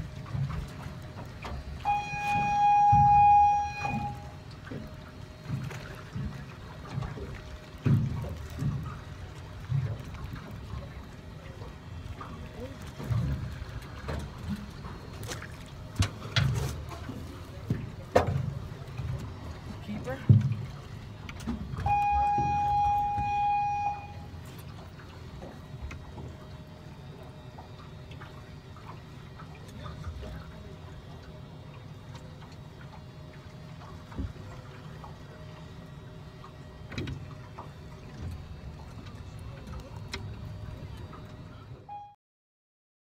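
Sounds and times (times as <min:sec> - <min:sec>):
water lapping around boat: 0:00.0 - 0:42.2
loud steady tone: 0:01.8 - 0:04.5, 0:21.8 - 0:24.5, 0:41.6 - 0:42.2.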